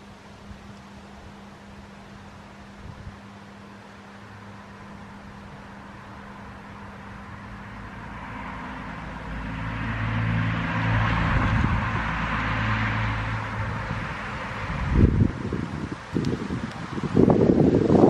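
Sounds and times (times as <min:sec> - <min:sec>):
wind rustling leaves: 0:00.0 - 0:18.0
car passing by: 0:04.2 - 0:18.0.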